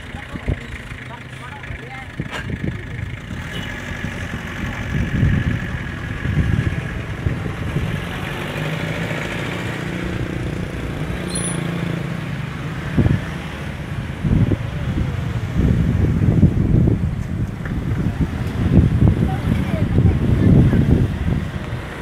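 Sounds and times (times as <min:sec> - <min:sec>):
low traffic rumble: 0:00.0 - 0:22.0
motorcycles riding past: 0:00.0 - 0:22.0.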